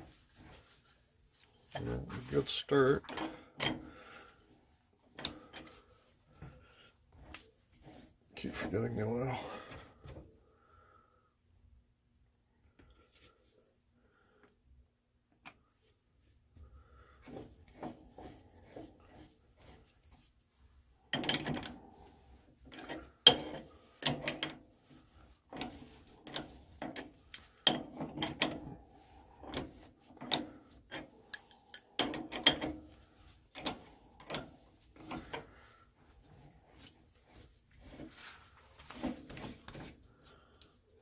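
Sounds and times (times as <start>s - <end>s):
wrench metallic clicks and clanks: 3.0s - 3.9s, 21.1s - 21.8s, 22.8s - 24.6s, 25.5s - 28.7s, 29.4s - 32.9s.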